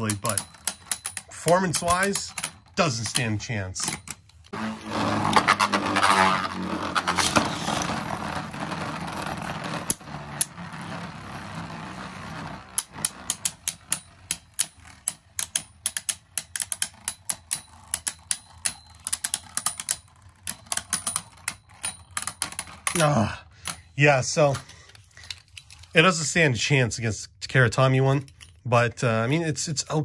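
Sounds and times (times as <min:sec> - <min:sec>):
spinning tops whirring: 0:00.0 - 0:24.0.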